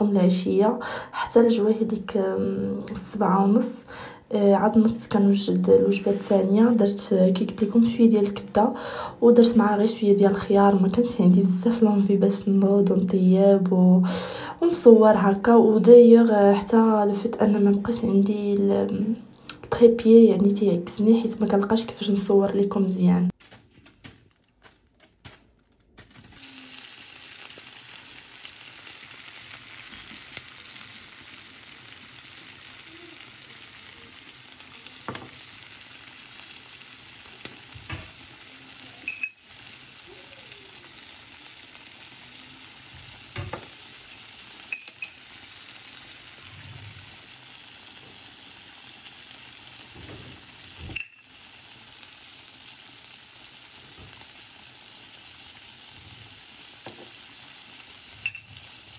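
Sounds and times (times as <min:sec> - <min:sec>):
liver sizzling in oil: 0:25.7 - 0:58.9.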